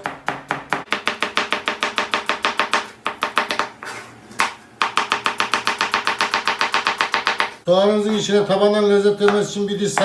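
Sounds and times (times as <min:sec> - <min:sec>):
knife chopping on plastic board: 0:00.0 - 0:03.8, 0:04.4 - 0:07.6.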